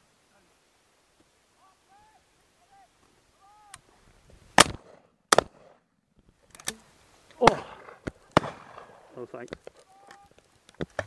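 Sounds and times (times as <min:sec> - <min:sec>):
shotgun shots: 0:04.6 - 0:05.8, 0:07.4 - 0:09.0.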